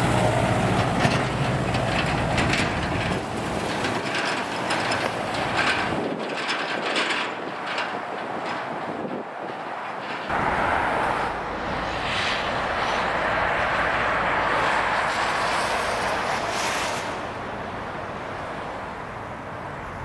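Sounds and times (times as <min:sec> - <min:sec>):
heavy vehicle passing: 0:00.0 - 0:06.0, 0:10.2 - 0:20.0.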